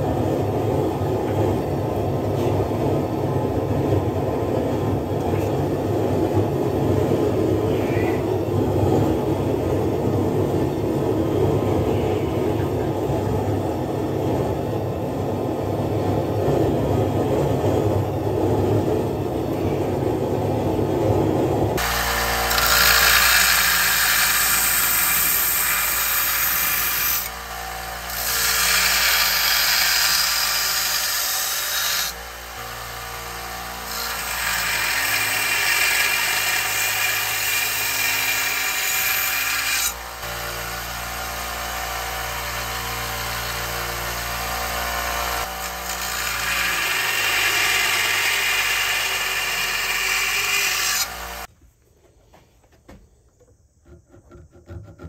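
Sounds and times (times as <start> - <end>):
belt grinder grinding steel: 21.8 - 51.5.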